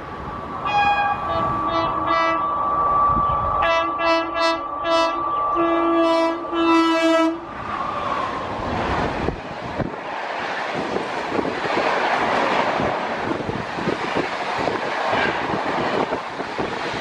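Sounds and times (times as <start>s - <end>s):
train rushing past: 0.0s - 17.0s
train horn short blasts: 0.7s - 2.5s, 3.6s - 7.4s.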